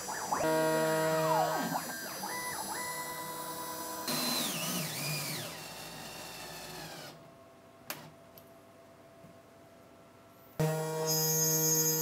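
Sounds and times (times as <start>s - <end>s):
steady high whine: 0.0s - 7.1s
milling machine motors whining: 0.0s - 7.2s.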